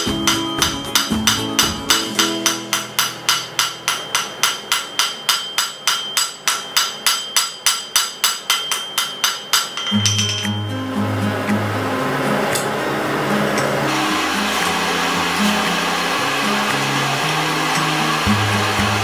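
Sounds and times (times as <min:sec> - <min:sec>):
hammer ringing on anvil: 0:00.0 - 0:10.7.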